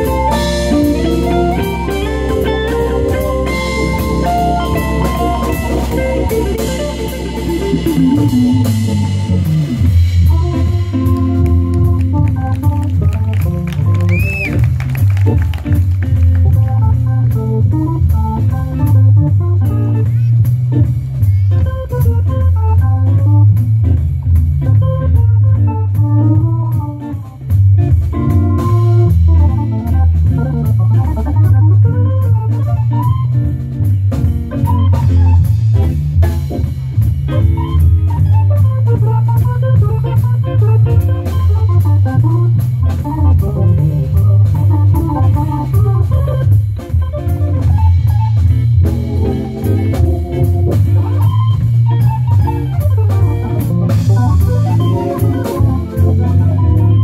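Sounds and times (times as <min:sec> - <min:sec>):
drum kit: 0:00.0 - 0:57.0
heavy bass line: 0:00.0 - 0:57.0
organ playing fast runs: 0:00.0 - 0:57.0.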